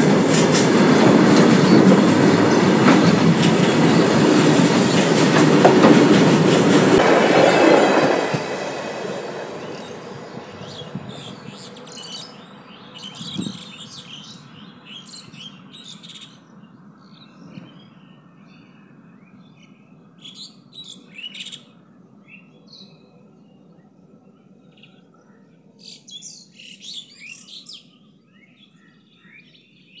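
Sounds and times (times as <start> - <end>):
freight train rolling over rails: 0.0 - 14.4
birds chirping: 1.5 - 30.0.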